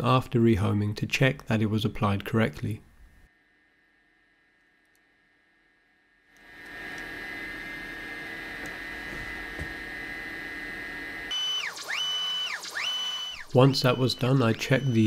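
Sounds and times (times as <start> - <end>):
steady hum with high whine: 2.8 - 15.0
stepper motors whining: 6.4 - 15.0.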